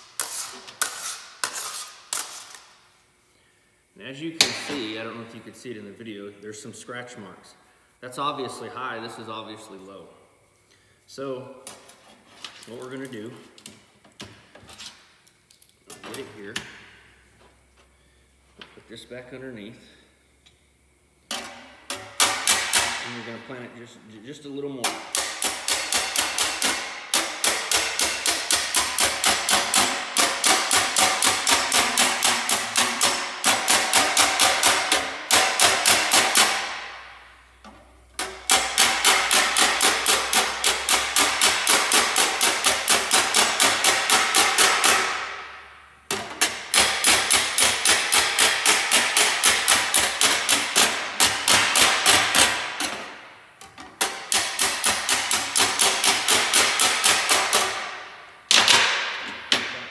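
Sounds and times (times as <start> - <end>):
hammer tapping sheet metal: 21.3 - 23.4, 24.8 - 37.3, 38.2 - 59.9.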